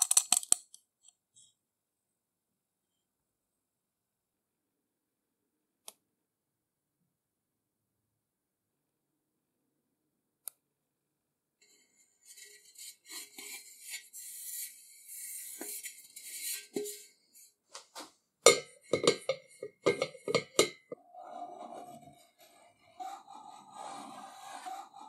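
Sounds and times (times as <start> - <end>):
metal scale pan clanking: 18.5 - 21.0
fingers rubbing on metal: 20.0 - 25.0.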